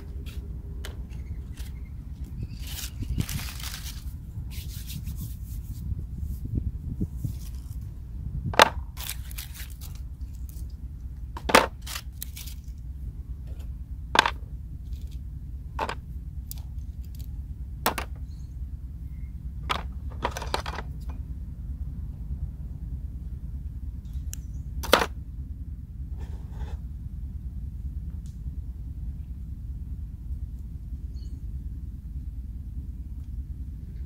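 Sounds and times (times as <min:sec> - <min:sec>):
dry leaves crackling: 0:00.0 - 0:05.8, 0:07.1 - 0:13.2
steady low rumble: 0:00.0 - 0:34.0.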